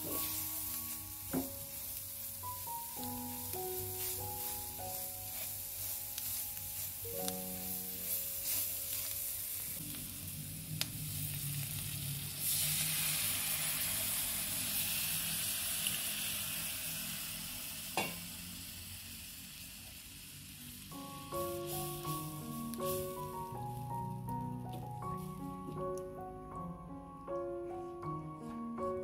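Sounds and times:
onions sizzling in a pan: 0.0 - 26.1
wooden spatula stirring: 2.6 - 9.6.

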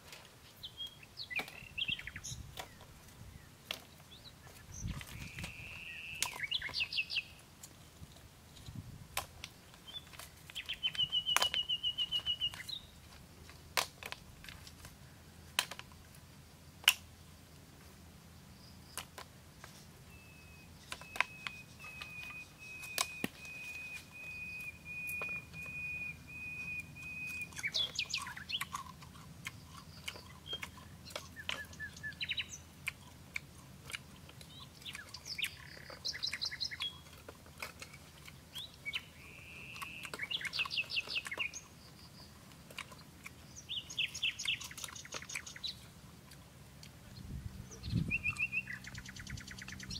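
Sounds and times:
birds chirping and calling: 0.6 - 7.4, 9.7 - 13.0, 19.6 - 33.1, 33.8 - 45.9, 47.1 - 49.9
bird trill: 4.8 - 7.4, 9.9 - 12.9, 20.1 - 28.8, 29.8 - 32.6, 34.5 - 37.1, 38.5 - 42.3, 43.5 - 45.8, 47.7 - 49.9.

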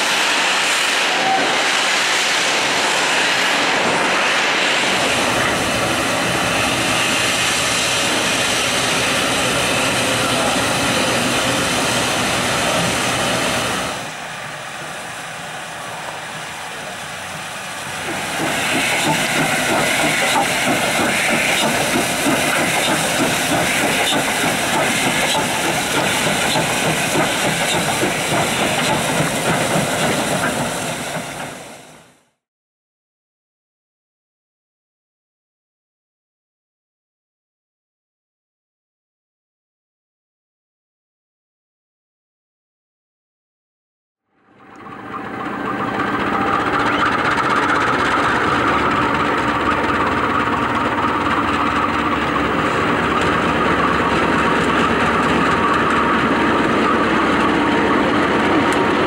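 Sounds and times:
steam locomotive hissing steam: 0.0 - 32.2, 44.9 - 59.0.

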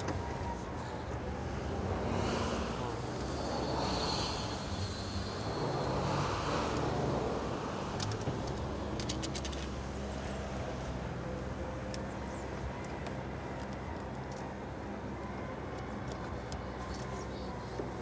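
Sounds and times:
diesel engine running low: 0.0 - 18.0
wind gusting over microphone: 1.3 - 9.0.

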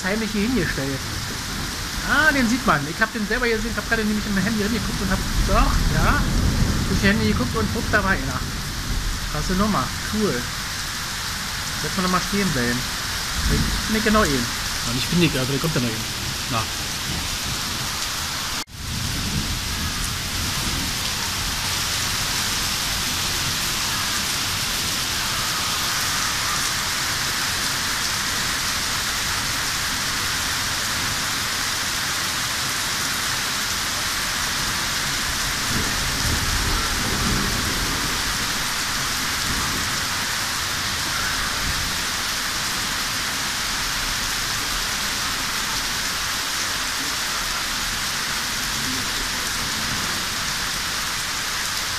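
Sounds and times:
thunder rumble: 0.0 - 27.6, 34.5 - 42.7
steady rain falling: 0.0 - 51.9.

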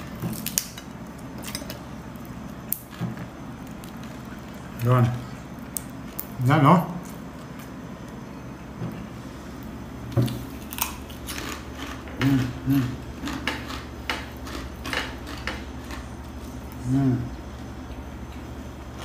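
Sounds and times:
crunching pork cracklings: 0.0 - 8.3, 9.5 - 19.0
person humming low: 12.1 - 13.0, 16.8 - 17.4.

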